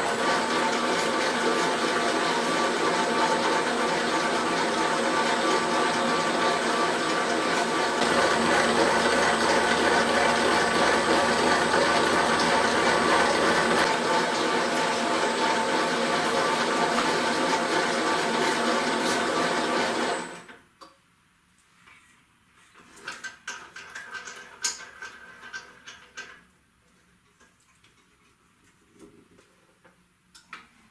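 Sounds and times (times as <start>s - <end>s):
dough mixer motor whirring: 0.0s - 20.5s.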